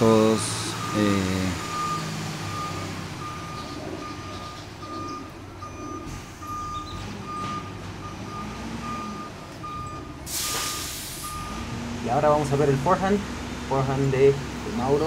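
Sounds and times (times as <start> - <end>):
vehicle reversing alarm beeping: 0.0 - 13.0
low engine rumble: 0.0 - 15.0.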